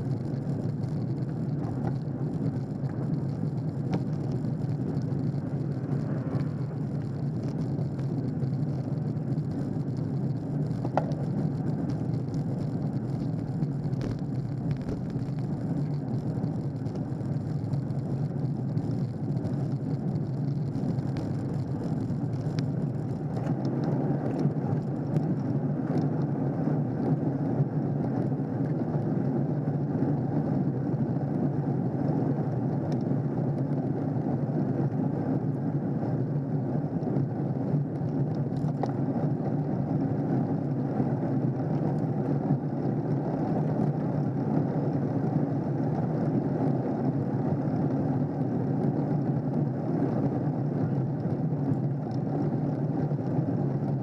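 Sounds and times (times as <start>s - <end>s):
tyre hum on tarmac: 0.0s - 26.3s
wind rushing over microphone: 0.0s - 54.0s.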